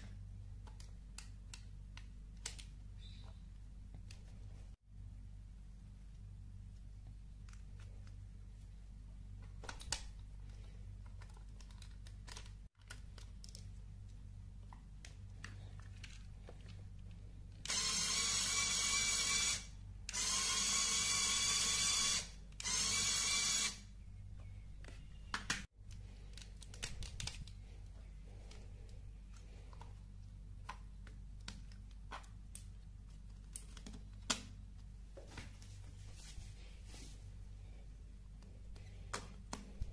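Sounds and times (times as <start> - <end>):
plastic parts clicking: 0.6 - 2.8, 9.6 - 13.7, 24.8 - 27.6.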